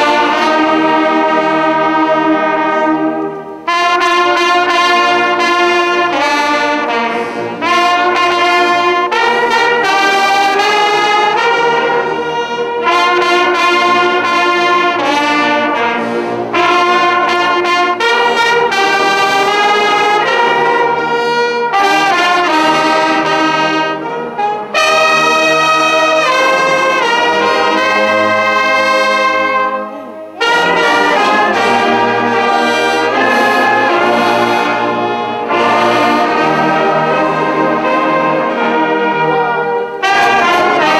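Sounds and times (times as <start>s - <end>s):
brass band playing chords: 0.0s - 40.9s.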